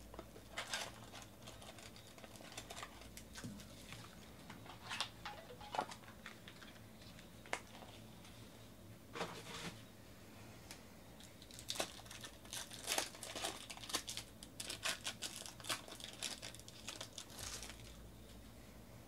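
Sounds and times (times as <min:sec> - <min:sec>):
foil wrapper crinkling: 0:00.2 - 0:08.0, 0:11.2 - 0:18.1.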